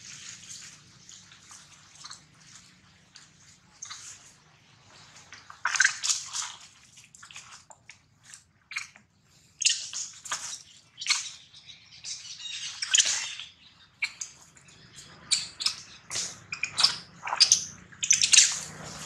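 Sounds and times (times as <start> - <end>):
dry leaves rustling and crackling: 18.4 - 19.0.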